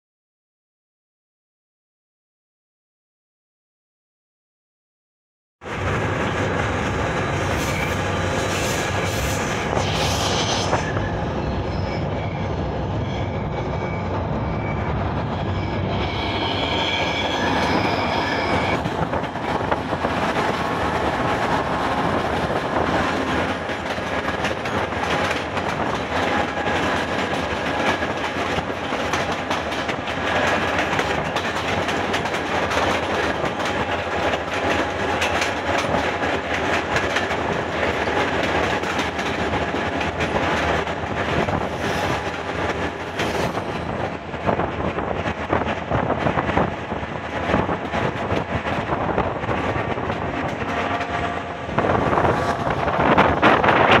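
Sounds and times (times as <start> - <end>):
freight train passing: 5.6 - 54.0.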